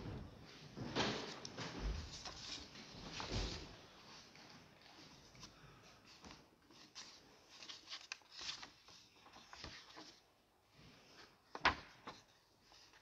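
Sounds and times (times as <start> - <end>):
handling rustles and knocks: 0.0 - 5.5.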